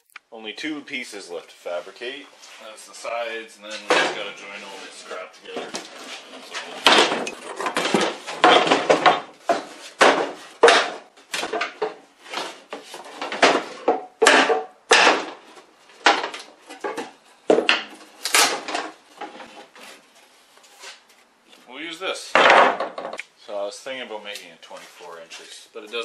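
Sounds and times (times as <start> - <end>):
wooden boards knocking together: 5.6 - 19.8, 22.3 - 23.2.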